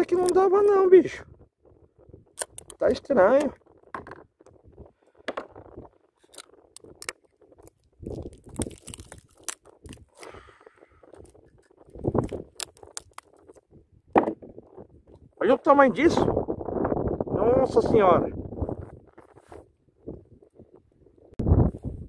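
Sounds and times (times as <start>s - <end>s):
clicks and knocks on plastic kayak: 14.1s - 14.5s.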